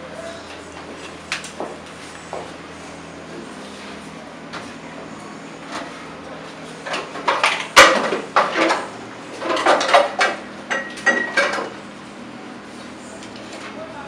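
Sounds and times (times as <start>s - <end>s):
dishes clattering in a steel sink: 6.9s - 11.8s.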